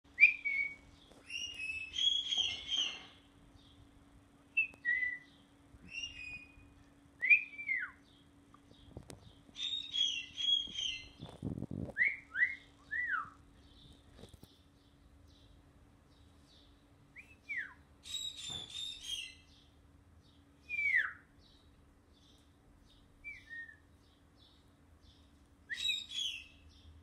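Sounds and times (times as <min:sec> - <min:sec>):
bird calling: 0:00.2 - 0:03.7, 0:04.6 - 0:08.2, 0:09.6 - 0:11.4, 0:25.7 - 0:26.6.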